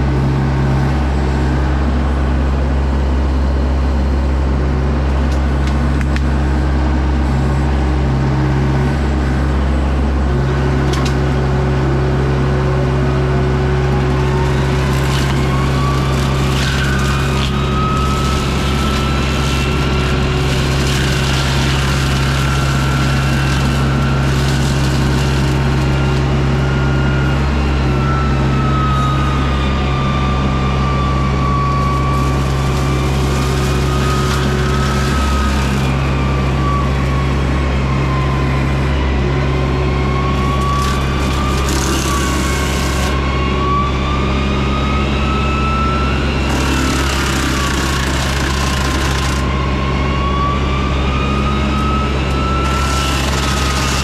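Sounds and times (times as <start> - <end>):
diesel engine running under load: 0.0 - 54.0
mulcher head whine: 0.0 - 54.0
brush crackling and snapping: 14.1 - 26.3.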